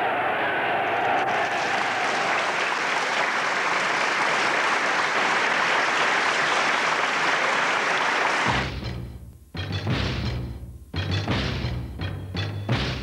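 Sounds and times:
crowd applauding: 0.0 - 8.7.

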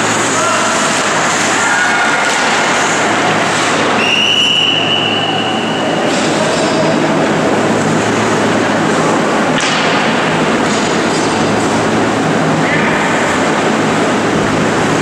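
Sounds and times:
noisy hiss of ice rink: 0.0 - 15.0
referee's whistle: 4.0 - 6.1
sharp clack: 9.5 - 11.5.

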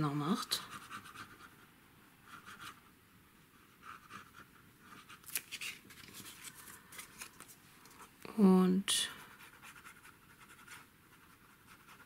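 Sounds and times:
paper rustling: 4.9 - 8.1.

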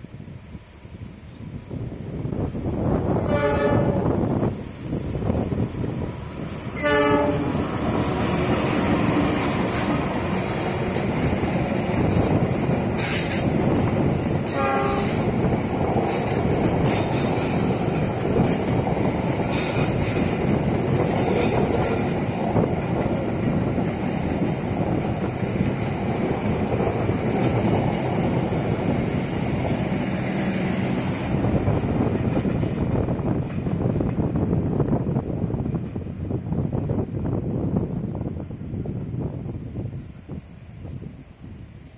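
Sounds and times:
train wheels rumbling on rails: 0.0 - 41.9
train horn: 3.2 - 4.2, 6.7 - 7.7, 14.4 - 15.3.

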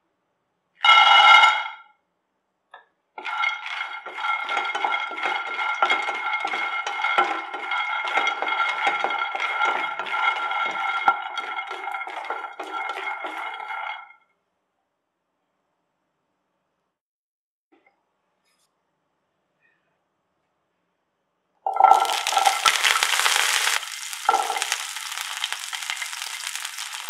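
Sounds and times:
nuts clattering in pan while stirred: 3.2 - 14.0, 21.7 - 27.0
peanuts poured into frying pan: 3.2 - 14.0, 21.7 - 27.0.

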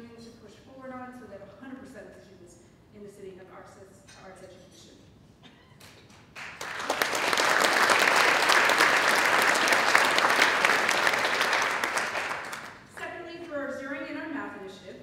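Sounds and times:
audience applauding: 6.4 - 12.8.

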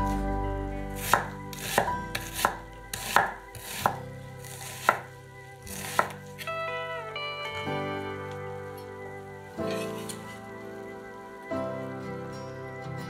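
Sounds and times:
knife chopping on wooden board: 1.0 - 4.0, 4.6 - 5.1, 5.7 - 6.2.

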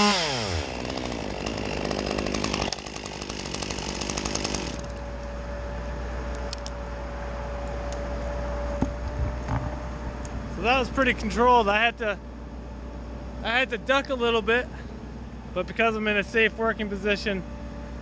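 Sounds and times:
chainsaw winding down and idling: 0.0 - 5.5.

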